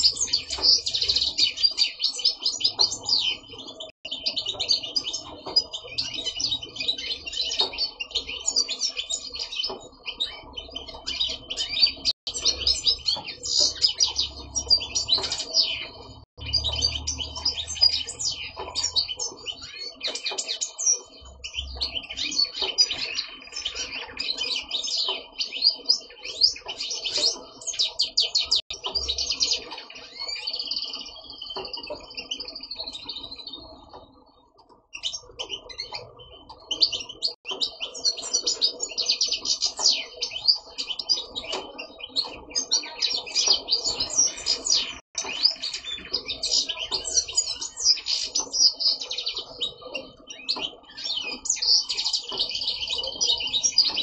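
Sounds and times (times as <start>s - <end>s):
goldfinch twittering song: 0.0s - 54.0s.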